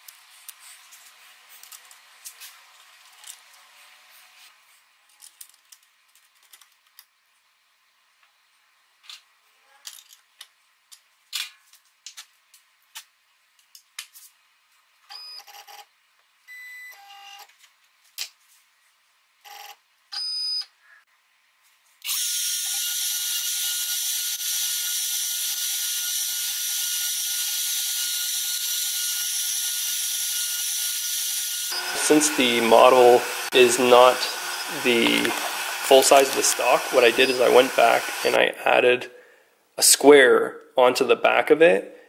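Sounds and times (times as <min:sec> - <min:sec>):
router spindle whining: 0:30.9 - 0:38.4.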